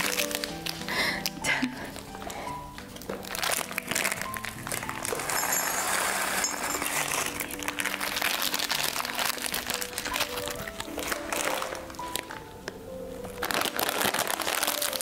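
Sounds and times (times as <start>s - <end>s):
background music: 0.0s - 15.0s
plastic snack bag crinkling: 0.0s - 15.0s
snacks poured into a bowl: 3.1s - 12.3s, 13.4s - 15.0s.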